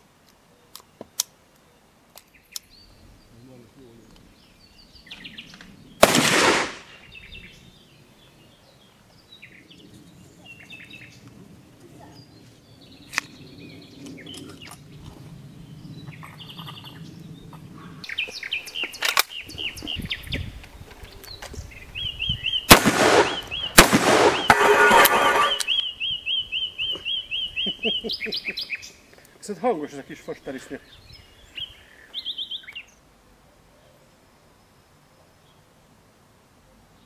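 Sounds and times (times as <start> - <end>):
small birds chirping: 0.3 - 6.1, 6.9 - 36.0
loud gunshot with echo: 6.0 - 6.9, 22.7 - 25.6
loud sudden crack: 6.0 - 7.0, 22.7 - 25.6.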